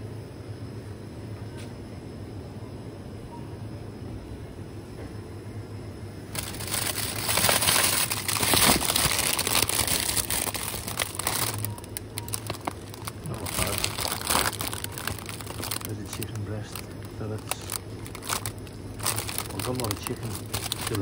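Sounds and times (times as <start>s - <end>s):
low steady hum: 0.0s - 21.0s
plastic bag crinkling: 6.3s - 21.0s.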